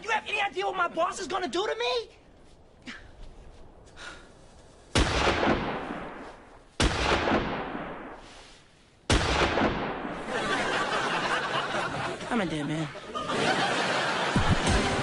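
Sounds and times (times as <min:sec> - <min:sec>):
gunshots with echo: 0:05.0 - 0:08.2, 0:09.1 - 0:10.4.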